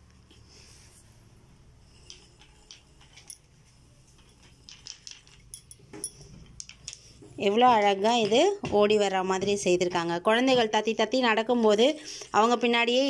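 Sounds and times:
wooden toy clicking on tiles: 0:01.9 - 0:03.5, 0:04.1 - 0:07.2.

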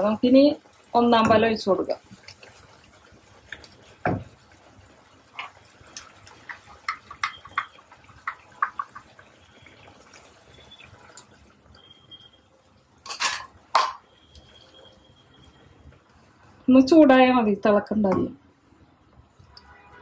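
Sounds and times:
gravy simmering and popping: 0:00.0 - 0:16.7
thump: 0:04.0 - 0:04.3.

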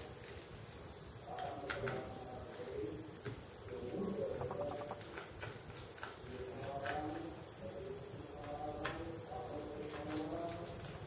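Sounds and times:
faint bird calls: 0:03.9 - 0:05.4
high-pitched insect drone: 0:03.9 - 0:06.0.

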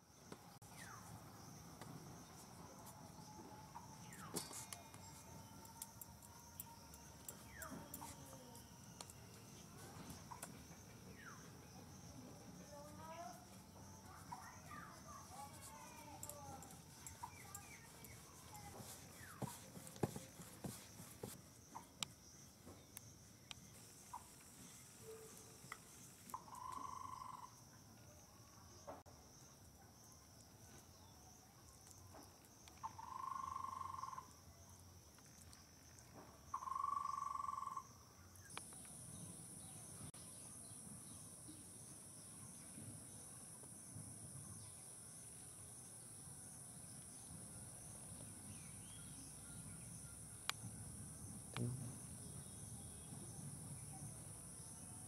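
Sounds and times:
insects chirring: 0:00.0 - 0:55.0
high-pitched insect: 0:00.2 - 0:29.5, 0:31.0 - 0:43.9
light knocks and taps: 0:18.6 - 0:21.4.

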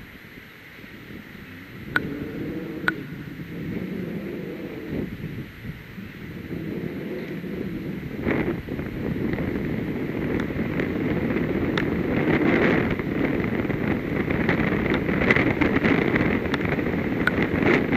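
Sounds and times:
wind rumbling on microphone: 0:00.0 - 0:17.9
faint clicks: 0:01.9 - 0:02.1, 0:02.8 - 0:03.2.

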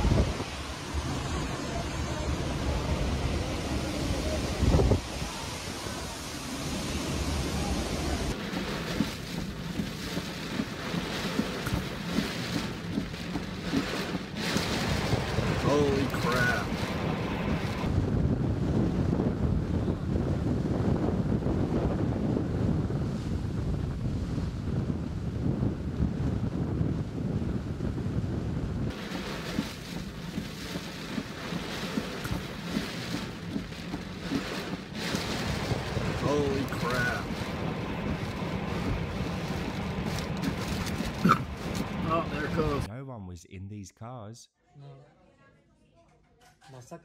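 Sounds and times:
gusts rumbling and knocking: 0:00.0 - 0:05.6, 0:06.2 - 0:42.9
heavy rain: 0:00.0 - 0:17.9, 0:28.9 - 0:42.9
hurricane wind: 0:00.0 - 0:42.9.

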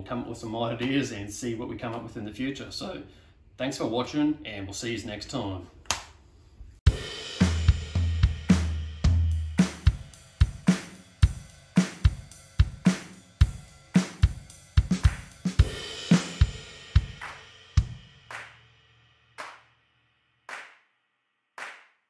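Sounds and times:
drum kit beat: 0:06.9 - 0:18.8, 0:19.4 - 0:19.7.

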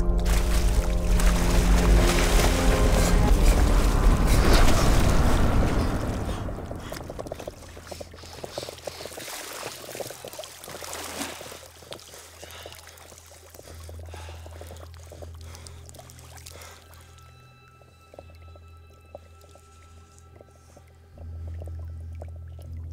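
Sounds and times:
sustained music notes: 0:00.0 - 0:08.2
low steady drone: 0:00.0 - 0:09.1, 0:11.6 - 0:22.9
creek water splashing: 0:00.0 - 0:17.2.

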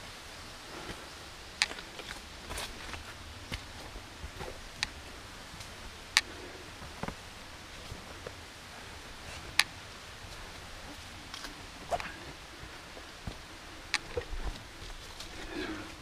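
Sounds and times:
footsteps on rocky trail: 0:00.8 - 0:08.4, 0:10.2 - 0:16.0.

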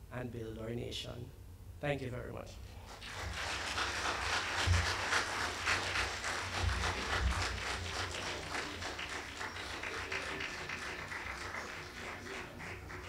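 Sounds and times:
audience applauding: 0:02.9 - 0:13.0.

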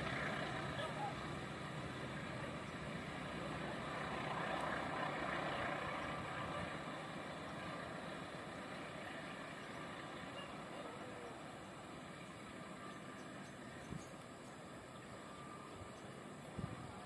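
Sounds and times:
freight train rumbling: 0:00.0 - 0:11.6.

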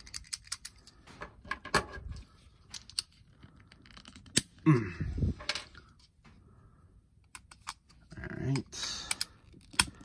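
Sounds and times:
plastic toy parts clicking: 0:00.0 - 0:01.0, 0:07.2 - 0:10.0.

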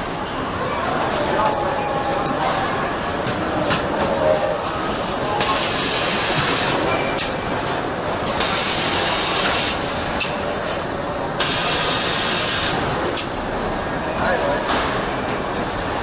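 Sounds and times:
machinery hissing: 0:04.6 - 0:07.2, 0:08.3 - 0:10.1.

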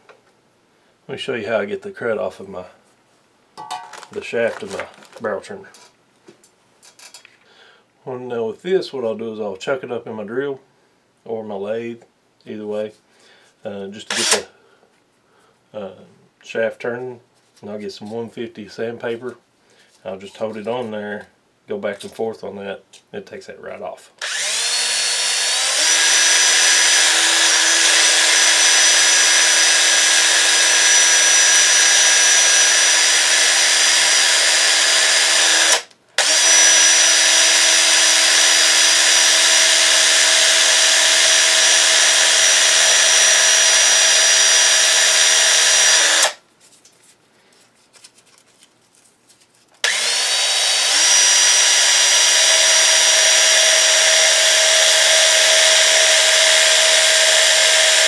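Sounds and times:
cordless drill running: 0:14.1 - 0:14.5, 0:24.2 - 0:46.4, 0:49.8 - 0:58.0.

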